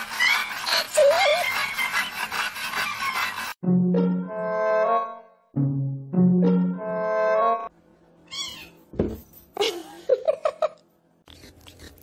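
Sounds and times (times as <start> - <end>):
music: 3.6 - 7.7
cat meowing: 8.3 - 8.8
thump: 8.9 - 9.2.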